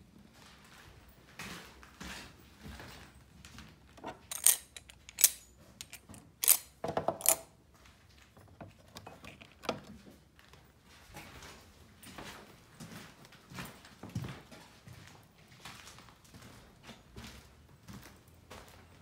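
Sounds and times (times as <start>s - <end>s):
glass jar and tools clinking: 4.1s - 7.4s.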